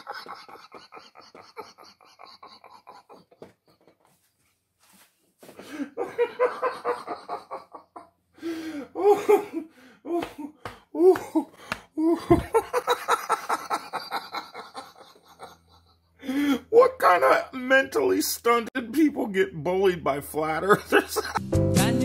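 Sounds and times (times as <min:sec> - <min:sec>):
man laughing heartily: 0:00.0 - 0:04.3, 0:05.6 - 0:16.7, 0:20.6 - 0:21.4.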